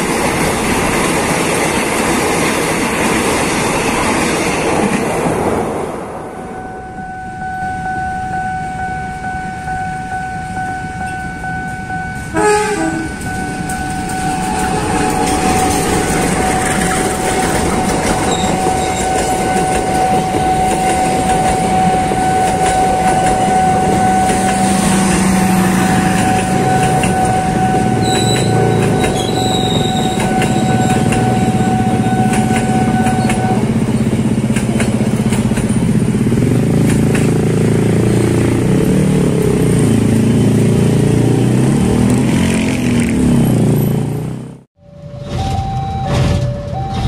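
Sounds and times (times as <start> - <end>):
train wheels rumbling on rails: 0.0 - 6.4, 10.1 - 44.4
high whine: 6.0 - 34.4.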